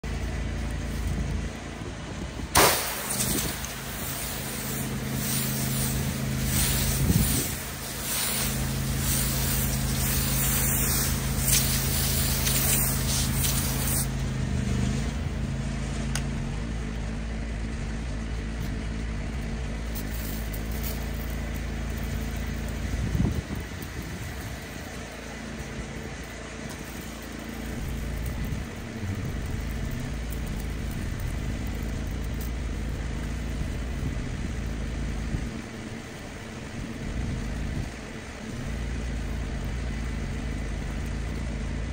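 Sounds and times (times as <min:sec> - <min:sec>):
pressure washer engine hum: 0:00.0 - 0:41.9
high-pressure water jet hissing: 0:02.5 - 0:15.3.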